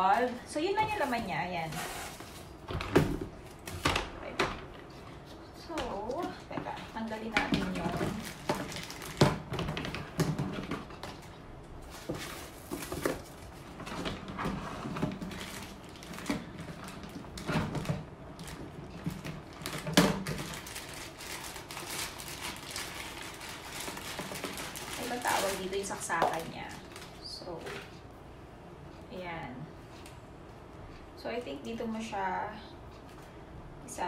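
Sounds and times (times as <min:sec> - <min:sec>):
plastic bag crinkling: 0:00.0 - 0:02.6, 0:05.9 - 0:27.9.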